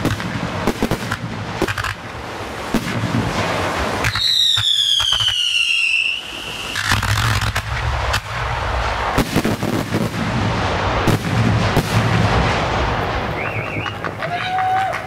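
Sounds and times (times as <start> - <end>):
fireworks bangs: 0.0 - 15.0
fireworks crackling: 0.0 - 15.0.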